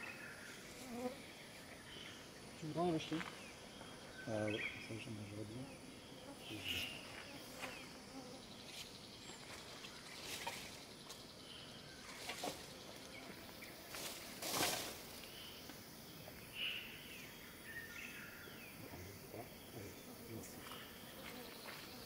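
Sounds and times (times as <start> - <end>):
birds chirping: 0.0 - 22.0
insects humming: 0.0 - 22.0.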